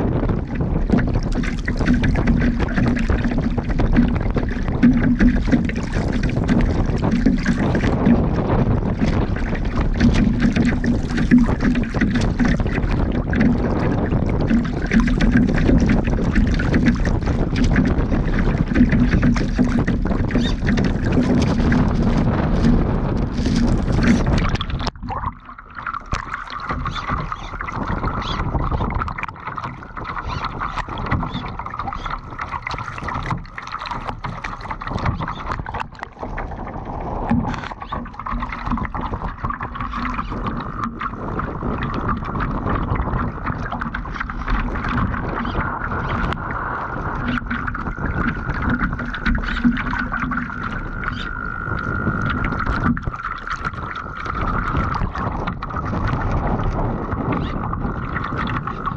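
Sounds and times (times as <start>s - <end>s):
water rushing and splashing: 0.0s - 58.9s
wind buffeting microphone: 0.0s - 58.9s.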